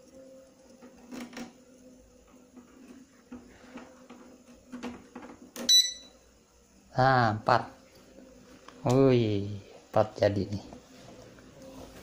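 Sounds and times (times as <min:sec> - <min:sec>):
keypad buzzer beep: 0:05.6 - 0:06.1.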